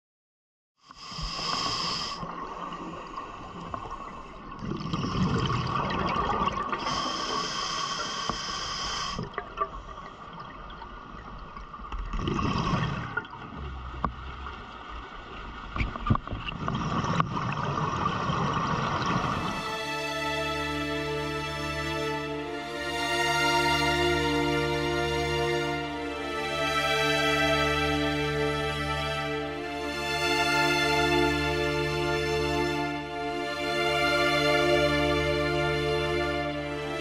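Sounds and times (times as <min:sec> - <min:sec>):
regulator hiss on inhalation: 0:00.9 - 0:02.3, 0:06.8 - 0:09.3
bubbling on exhalation: 0:04.6 - 0:07.1, 0:12.0 - 0:13.8.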